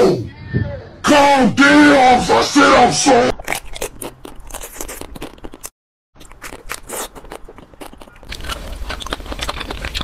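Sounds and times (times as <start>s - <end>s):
crunchy biting and chewing: 3.3s - 10.0s.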